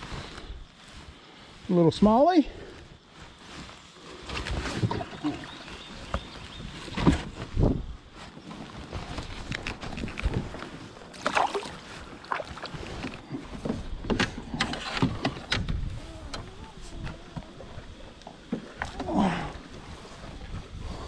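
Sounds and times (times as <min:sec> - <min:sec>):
kayak paddle splashing: 0:04.4 - 0:06.4, 0:11.0 - 0:15.4
small water splash: 0:04.8 - 0:05.9, 0:11.1 - 0:12.9.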